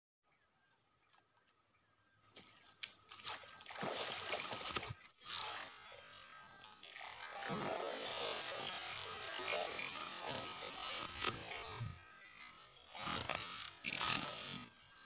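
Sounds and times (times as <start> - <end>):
fish splashing and thrashing: 3.0 - 5.8, 7.1 - 11.9.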